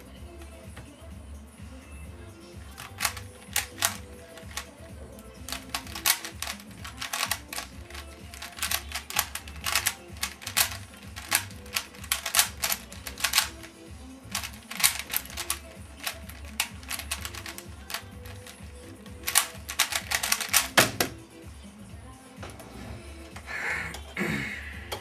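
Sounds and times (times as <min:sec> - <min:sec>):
puzzle cube clicking: 0:02.7 - 0:21.2.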